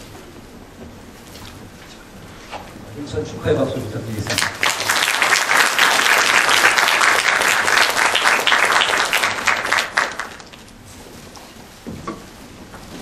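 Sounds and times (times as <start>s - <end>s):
audience applauding: 4.2s - 10.7s.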